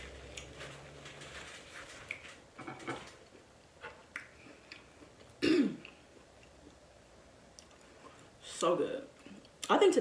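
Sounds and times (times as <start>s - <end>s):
person chewing wetly: 0.1s - 0.9s, 3.8s - 6.8s, 7.5s - 8.2s.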